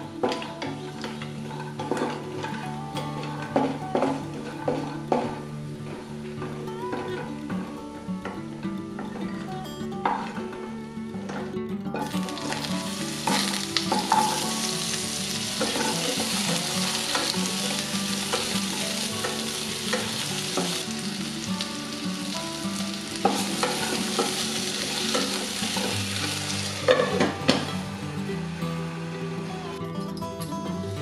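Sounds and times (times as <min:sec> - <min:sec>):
potatoes sizzling in oil: 0:12.0 - 0:28.0.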